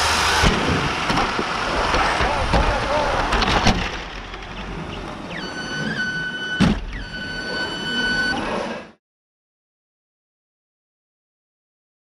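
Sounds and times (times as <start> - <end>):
electric motors whining: 4.3 - 8.9.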